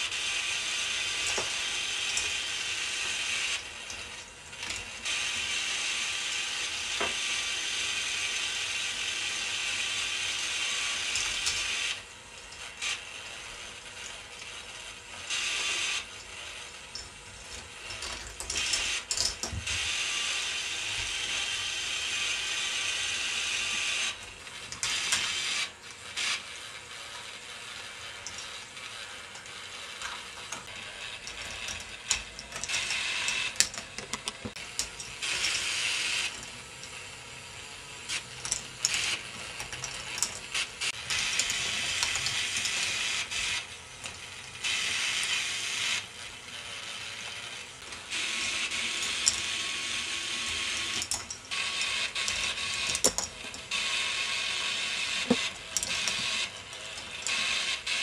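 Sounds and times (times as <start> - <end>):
plastic gears clicking and rattling: 9.4 - 20.0, 23.8 - 37.1, 38.0 - 58.0
balls clacking on plastic tracks: 28.1 - 37.0, 38.1 - 45.2, 47.8 - 57.8.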